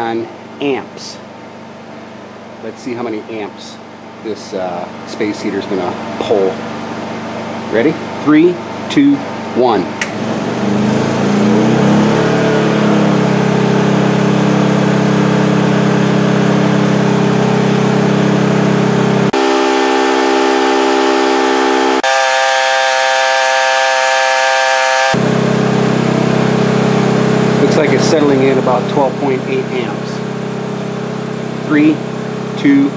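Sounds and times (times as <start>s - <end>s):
generator engine speeding up: 10.0s - 32.9s.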